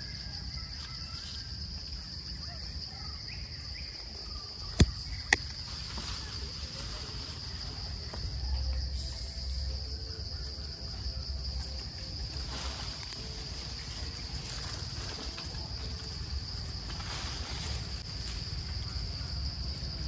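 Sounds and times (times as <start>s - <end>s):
high-pitched insect drone: 0.0s - 20.0s.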